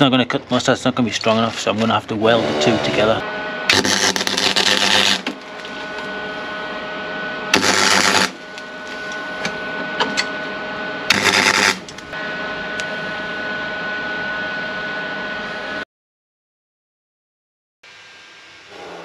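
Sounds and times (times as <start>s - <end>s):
steady welder hum: 0.6s - 15.8s
welding arc bursts: 3.7s - 5.4s, 7.5s - 8.6s, 11.1s - 12.0s.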